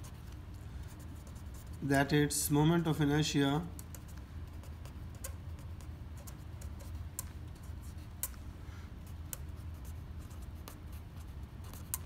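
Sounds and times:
low steady hum: 0:00.0 - 0:12.0
felt-tip pen writing on paper: 0:09.0 - 0:12.0.

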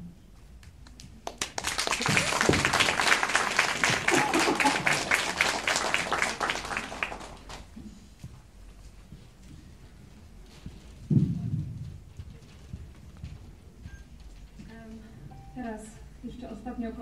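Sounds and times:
audience applauding: 0:01.2 - 0:07.8.

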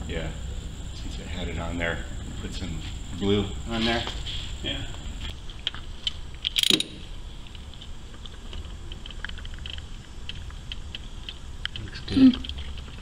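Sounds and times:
socket ratchet clicking: 0:06.4 - 0:07.0.

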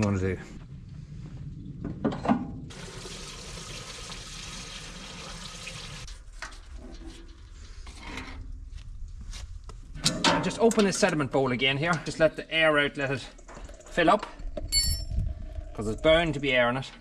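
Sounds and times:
fuel pouring into tank: 0:02.7 - 0:06.1.

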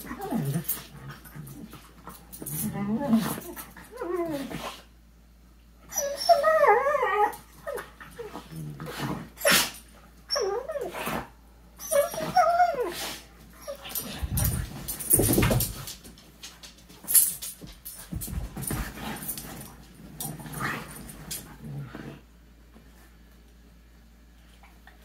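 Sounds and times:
dogs whining: 0:02.5 - 0:04.8, 0:05.8 - 0:15.7
dogs scuffling: 0:13.7 - 0:22.1
low rumbling scuffle: 0:13.7 - 0:23.2.

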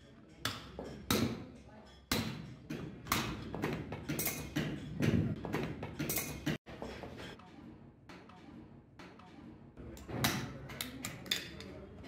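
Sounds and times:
hammer striking metal punch: 0:00.4 - 0:01.4.

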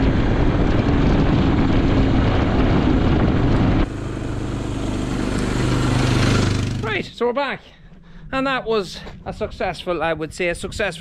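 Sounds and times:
quad engine running: 0:00.0 - 0:07.1.

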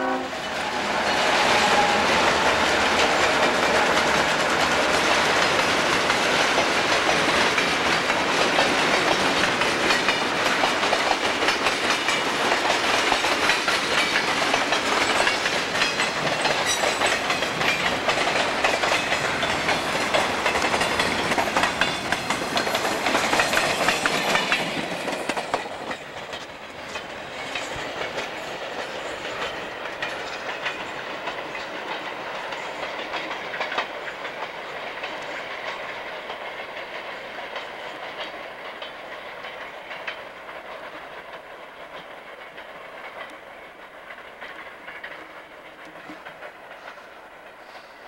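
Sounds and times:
train wheels clicking over rail joints: 0:00.4 - 0:48.0.

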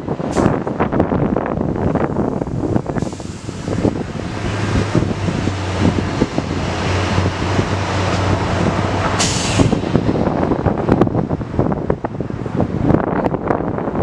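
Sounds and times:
low engine hum: 0:00.0 - 0:14.0
wind buffeting microphone: 0:00.0 - 0:14.0
sharp hiss of air: 0:02.6 - 0:04.1, 0:09.2 - 0:10.4.

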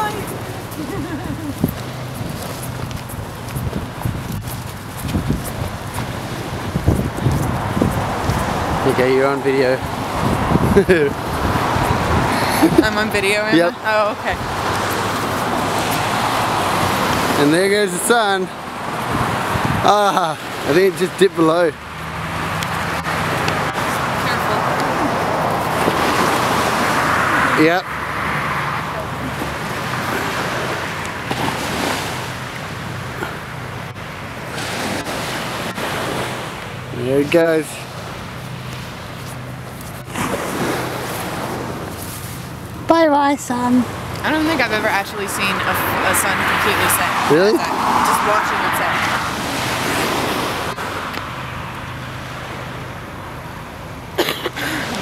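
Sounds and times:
wind noise on microphone: 0:00.0 - 0:17.4, 0:18.6 - 0:20.7
small waves lapping on beach: 0:00.0 - 0:42.9, 0:43.7 - 0:55.0
traffic hum: 0:00.0 - 0:55.0
car driving past: 0:14.3 - 0:32.3, 0:43.8 - 0:52.9.

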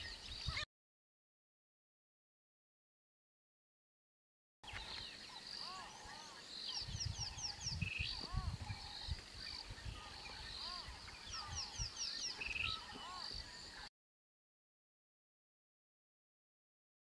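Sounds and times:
birds whistling: 0:04.7 - 0:13.9.

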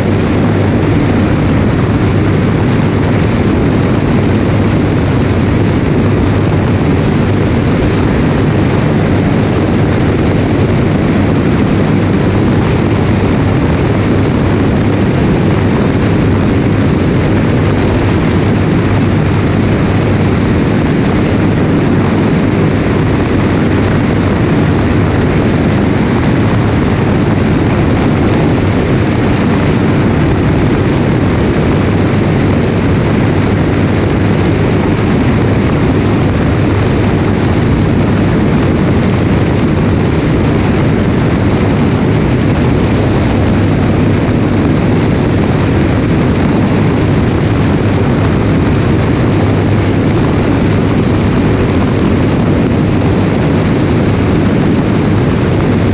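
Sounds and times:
propeller aircraft engine drone: 0:00.0 - 0:55.9
wind rush: 0:00.0 - 0:55.9.

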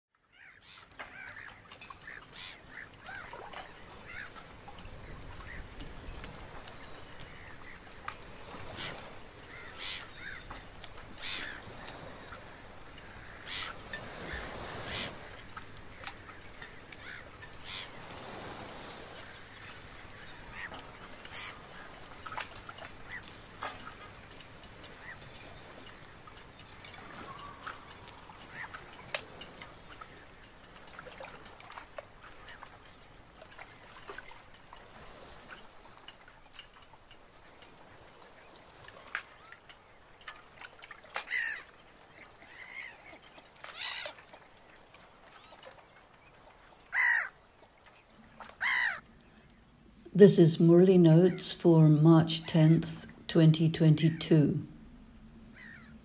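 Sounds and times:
moving water: 0:00.1 - 0:56.0
bird calls: 0:00.2 - 0:36.6, 0:37.4 - 0:49.6, 0:55.4 - 0:56.0.

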